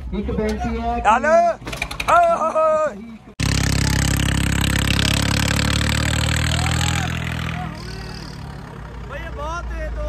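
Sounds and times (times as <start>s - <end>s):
vehicle engine running: 3.4s - 10.0s.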